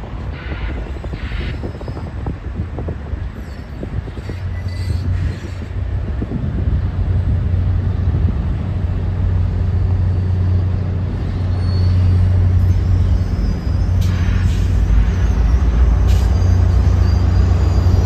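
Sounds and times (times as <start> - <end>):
diesel locomotive engine drone: 0.0 - 18.0.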